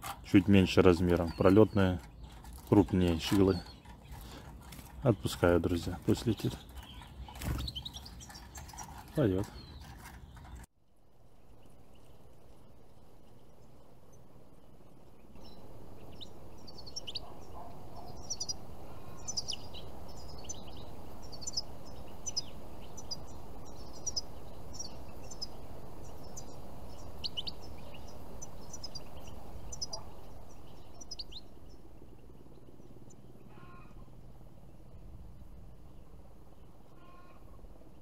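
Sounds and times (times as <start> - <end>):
birds chirping and trilling: 0.0 - 38.0.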